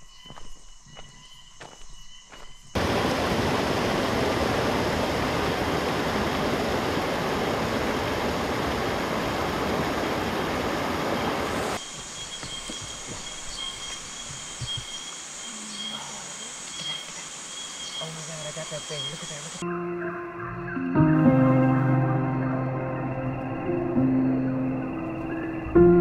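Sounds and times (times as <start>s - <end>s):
stream rushing over rocks: 2.8s - 12.1s.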